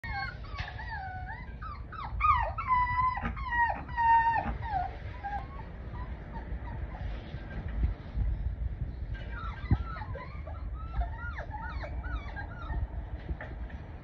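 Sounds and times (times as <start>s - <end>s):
puppies whining and whimpering: 0.0s - 7.7s, 9.1s - 14.0s
low rumble: 0.0s - 14.0s.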